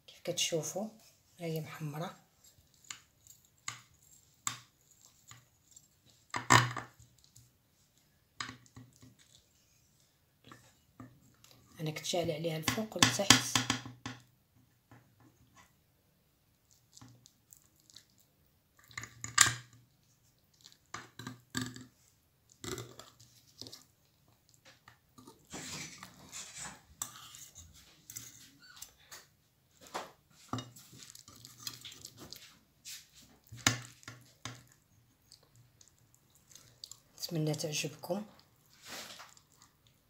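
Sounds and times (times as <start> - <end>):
knife scraping glass dish: 25.5 - 28.6.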